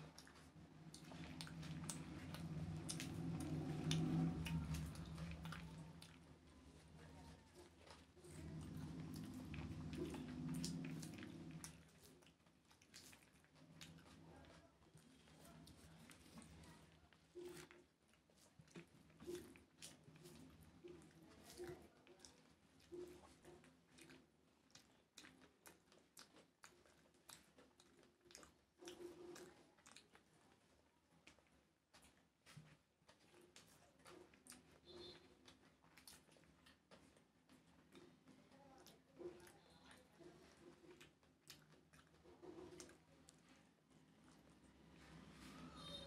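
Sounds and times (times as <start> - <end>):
low steady hum: 0.0 - 25.2
chewing: 0.0 - 46.0.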